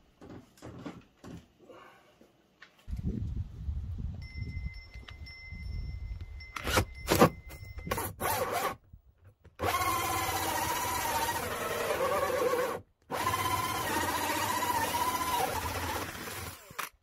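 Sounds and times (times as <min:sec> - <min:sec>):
drill with hole saw cutting wood: 0:09.6 - 0:17.0.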